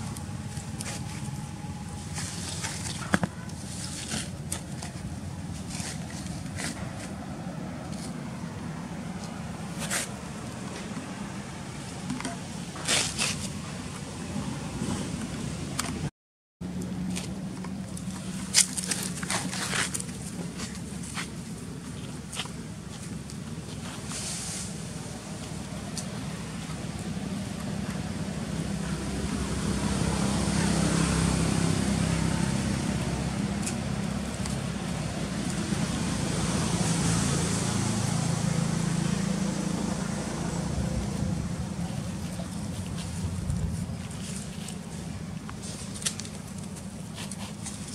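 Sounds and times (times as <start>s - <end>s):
road noise: 0.0s - 47.9s
vehicle engine hum: 0.0s - 47.9s.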